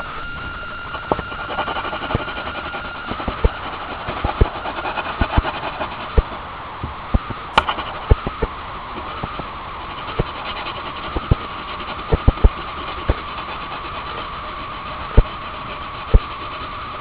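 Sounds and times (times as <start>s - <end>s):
constant hum: 0.0s - 17.0s
pencil scratching on paper: 0.9s - 6.4s, 7.6s - 17.0s
sharp taps and clicks: 7.2s - 8.5s.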